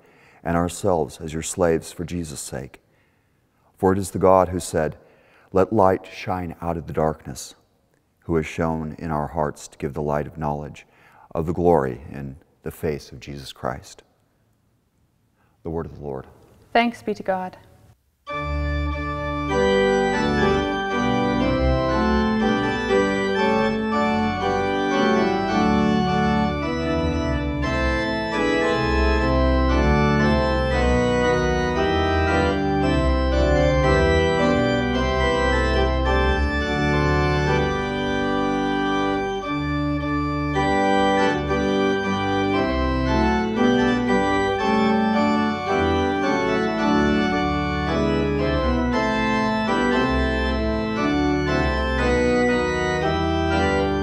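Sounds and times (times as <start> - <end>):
pipe organ chords: 18.2 - 54.0
deep organ pedal bass: 18.3 - 54.0.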